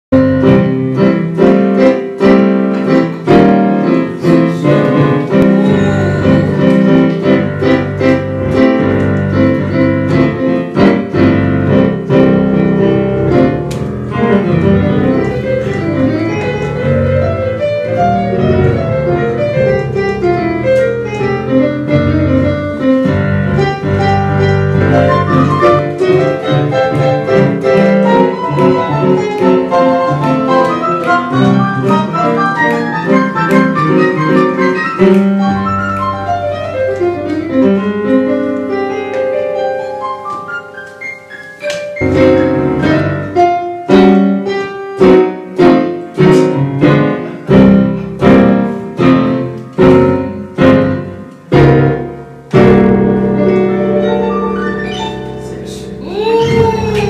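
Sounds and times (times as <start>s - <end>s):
jazz piano improvisation: 0.0s - 57.0s.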